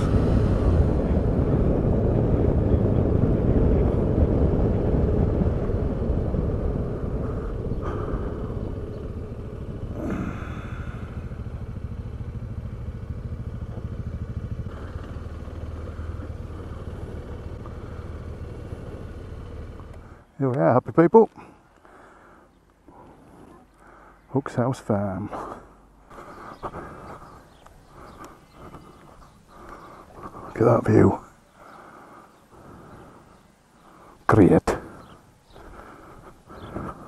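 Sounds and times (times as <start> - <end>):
wind rush: 0.0 - 12.3
motorcycle engine running: 0.0 - 20.3, 25.7 - 34.1, 34.9 - 37.0.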